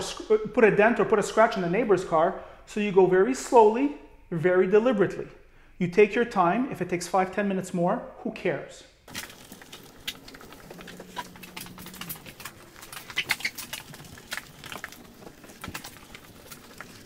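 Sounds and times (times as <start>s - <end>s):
wash mitt rubbing wet car: 9.1s - 17.0s.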